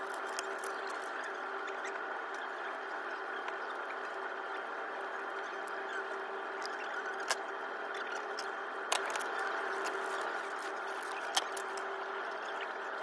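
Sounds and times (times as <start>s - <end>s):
tape and paper handling: 0.0s - 1.1s, 8.2s - 11.9s
steady hum: 0.0s - 13.0s.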